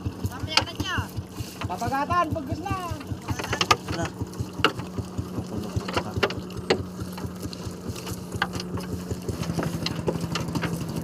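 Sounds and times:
boat engine idling: 0:00.0 - 0:11.0
light clicks and knocks: 0:02.8 - 0:11.0.

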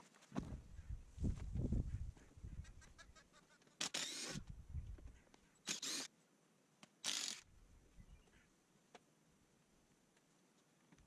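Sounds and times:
faint low bumps: 0:00.3 - 0:02.8.

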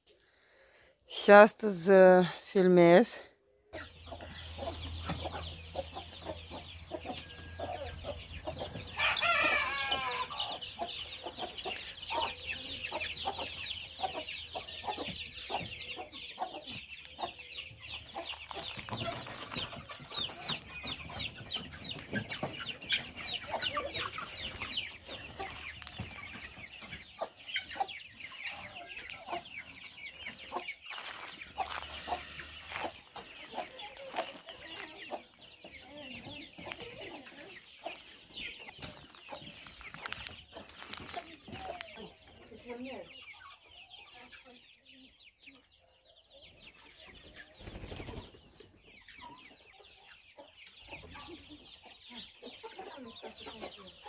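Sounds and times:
chickens and chicks peeping: 0:00.0 - 0:54.0
drawn-out chicken call: 0:03.8 - 0:35.4.

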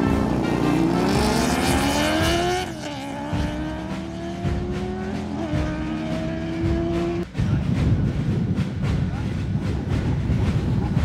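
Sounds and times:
motorcycles accelerating: 0:00.0 - 0:07.3.

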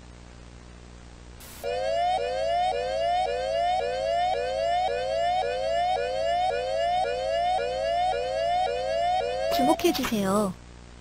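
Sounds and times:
rising whooping siren: 0:01.6 - 0:09.9.

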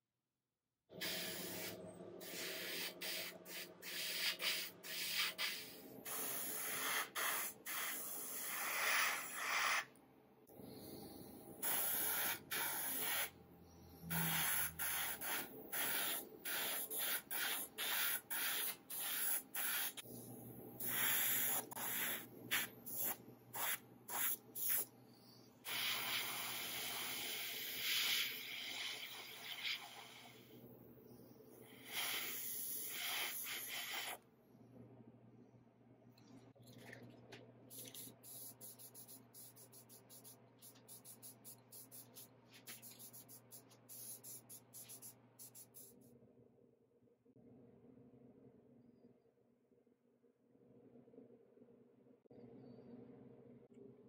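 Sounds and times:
airbrush spraying hiss: 0:01.0 - 0:09.9, 0:11.6 - 0:13.4, 0:14.1 - 0:20.0, 0:20.8 - 0:24.9, 0:25.7 - 0:30.4, 0:31.7 - 0:34.2, 0:37.7 - 0:46.0.

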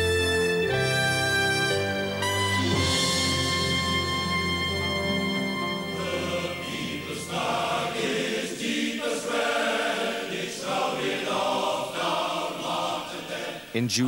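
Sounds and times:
choir singing: 0:02.6 - 0:13.8.

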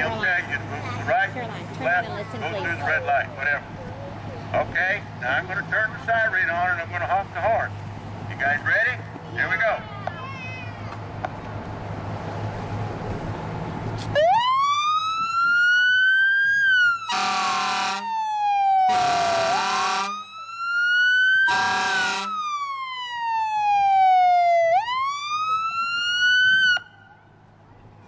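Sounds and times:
fire engine siren wailing: 0:14.1 - 0:27.4
truck horn blasts: 0:17.1 - 0:18.1, 0:18.9 - 0:20.2, 0:21.5 - 0:22.4.

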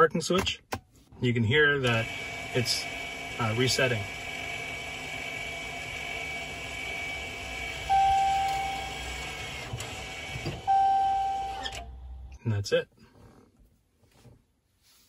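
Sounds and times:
parking brake motor whine: 0:01.8 - 0:12.4
electronic chime: 0:07.9 - 0:09.0.

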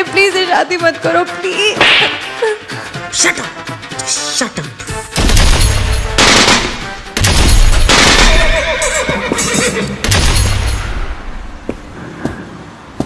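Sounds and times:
horse whinnying: 0:08.1 - 0:10.0
deep heavy hits: 0:10.0 - 0:11.7.

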